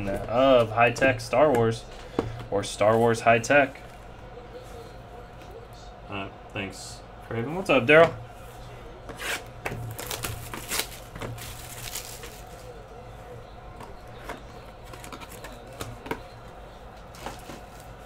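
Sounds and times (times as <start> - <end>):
plastic wrap crackling: 9.8 - 12.8.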